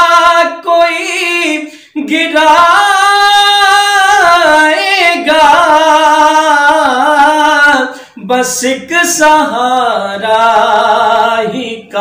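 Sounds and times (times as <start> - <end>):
man singing unaccompanied: 0.0 - 12.0
short breath: 1.6 - 2.0, 7.9 - 8.2.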